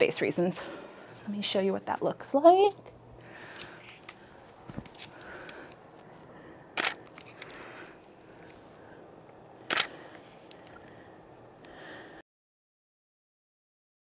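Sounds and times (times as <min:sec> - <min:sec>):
camera shutter click: 0:06.8 - 0:07.0, 0:09.7 - 0:09.9.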